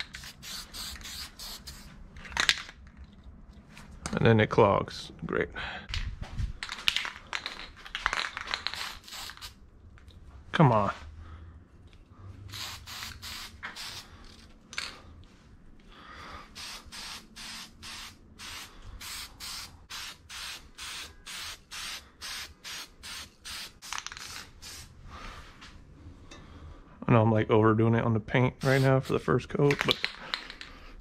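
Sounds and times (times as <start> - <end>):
spray-paint can hissing: 0.0 - 1.9, 8.7 - 9.6, 12.5 - 14.1, 16.6 - 24.9, 28.6 - 29.1.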